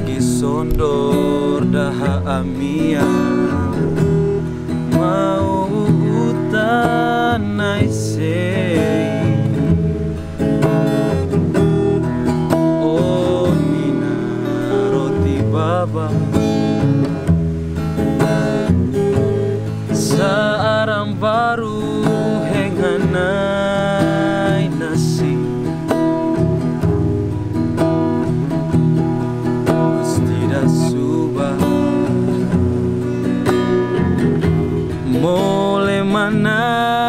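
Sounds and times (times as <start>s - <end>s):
man singing: 0.0s - 9.8s, 12.0s - 17.1s, 19.9s - 26.1s, 29.6s - 32.9s, 34.9s - 37.0s
acoustic guitars strummed and picked: 0.0s - 37.0s.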